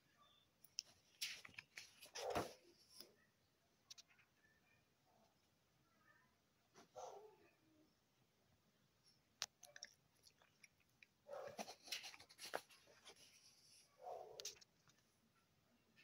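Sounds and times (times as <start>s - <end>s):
magazine pages rustling: 1.1s - 3.1s.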